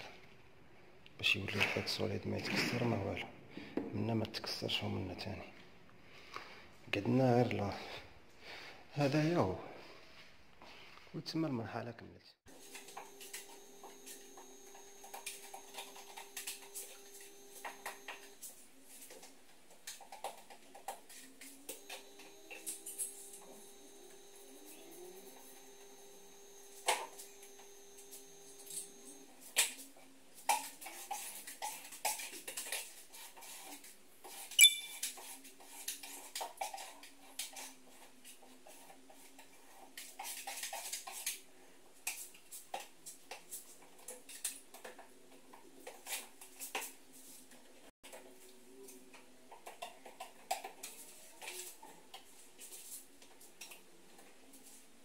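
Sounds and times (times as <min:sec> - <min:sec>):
tool taps and metallic clinks: 0:34.6 - 0:35.2.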